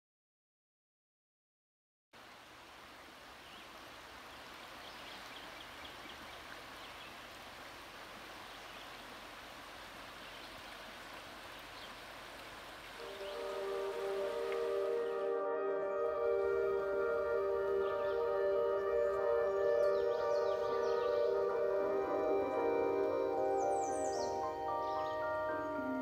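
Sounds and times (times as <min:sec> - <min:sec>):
river water over gravel: 0:02.2 - 0:15.1
music with sustained tones: 0:13.0 - 0:26.0.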